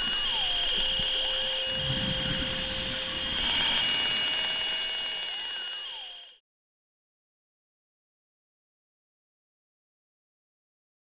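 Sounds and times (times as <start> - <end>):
droning ambient soundtrack: 0.0 - 6.4.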